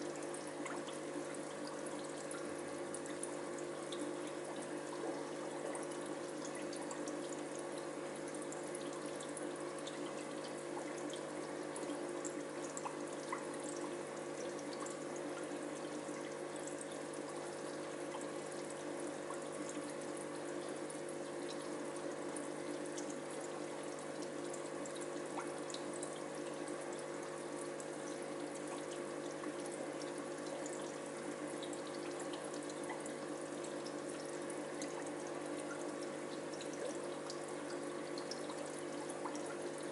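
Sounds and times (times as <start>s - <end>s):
filter humming: 0.0s - 22.9s
water trickling and splashing: 0.0s - 39.9s.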